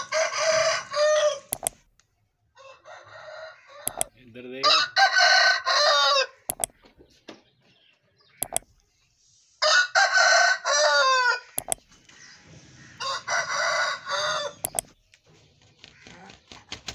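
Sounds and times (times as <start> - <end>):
rooster crowing: 0.0 - 1.5, 2.6 - 6.4, 9.6 - 11.5, 12.9 - 14.6
short sharp clicks: 1.5 - 2.1, 3.9 - 4.2, 6.5 - 6.9, 8.4 - 8.9, 11.6 - 12.0, 14.6 - 15.0.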